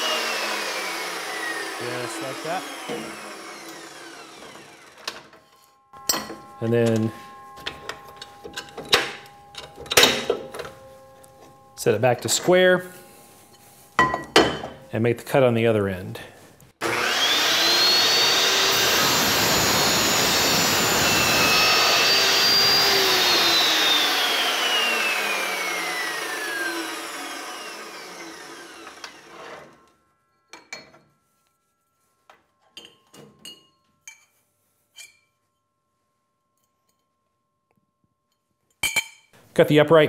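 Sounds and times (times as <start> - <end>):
saw motor whine spinning down: 0.0 - 5.4, 16.8 - 30.2
saw cutting metal tubing: 0.0 - 13.7, 16.8 - 30.0
vise clicks and knocks: 5.0 - 11.6.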